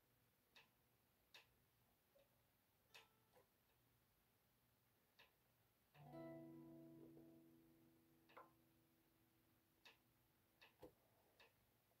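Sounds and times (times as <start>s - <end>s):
faint clicks: 0.5s - 1.6s, 5.1s - 6.1s, 9.8s - 11.6s
electric guitar chord ringing: 6.0s - 8.9s.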